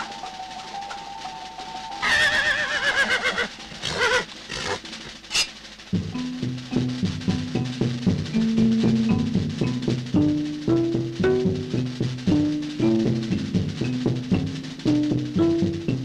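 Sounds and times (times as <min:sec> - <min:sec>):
rhythmic music with drum beat: 0:00.0 - 0:16.0
horse whinnying: 0:02.0 - 0:05.5.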